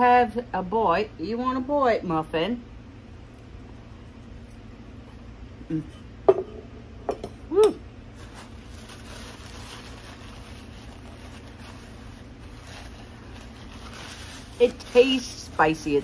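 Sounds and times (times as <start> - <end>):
person humming: 5.6 - 6.0
cloth rubbing over face: 8.1 - 16.0.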